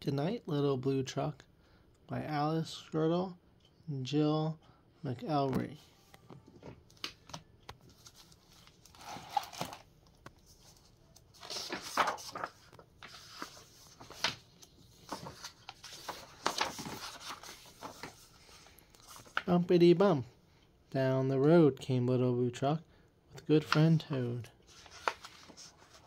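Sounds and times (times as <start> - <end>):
book pages turning: 5.4 - 19.6, 23.6 - 26.0.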